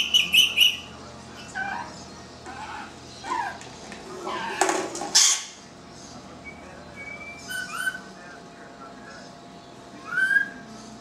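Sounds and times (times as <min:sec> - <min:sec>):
parrot squawking and chirping: 0:00.0 - 0:03.6, 0:04.2 - 0:05.6, 0:07.2 - 0:08.1, 0:10.0 - 0:10.6.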